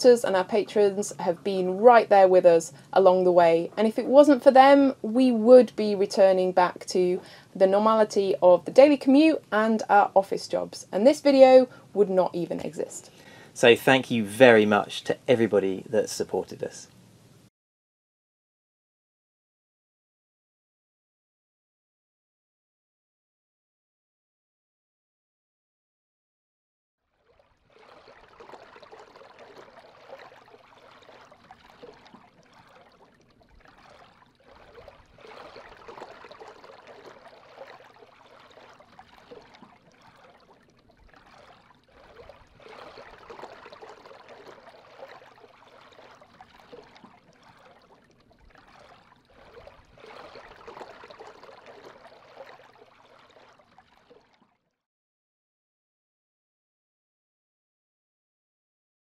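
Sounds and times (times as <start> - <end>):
water washing in slow swells: 27.2 - 54.5.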